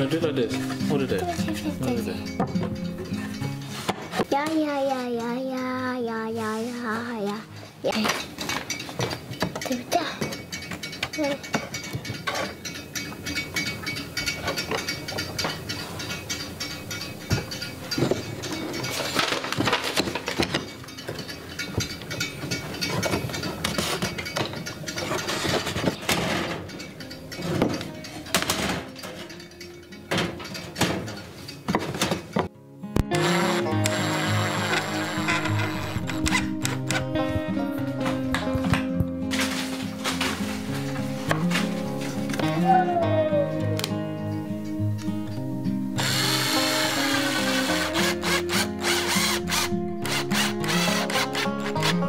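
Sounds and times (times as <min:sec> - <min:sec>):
background music: 0:00.0 - 0:52.0
cordless drill motor whirring: 0:33.1 - 0:36.8, 0:46.0 - 0:52.0.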